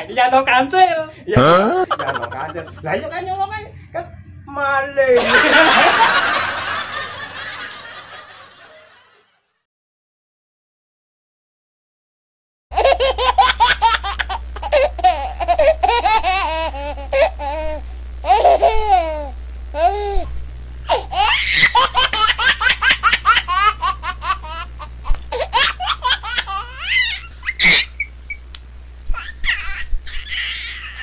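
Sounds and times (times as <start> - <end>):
high-pitched laughter: 1.4 - 2.9, 20.9 - 28.1.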